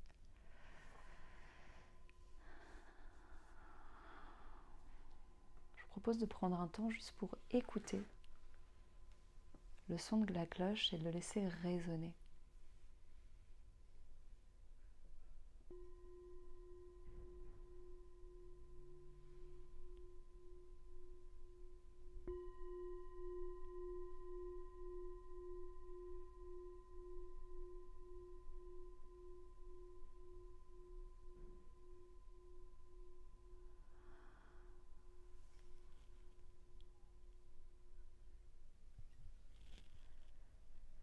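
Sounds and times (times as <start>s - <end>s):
singing bowl ringing: 15.6s - 38.0s.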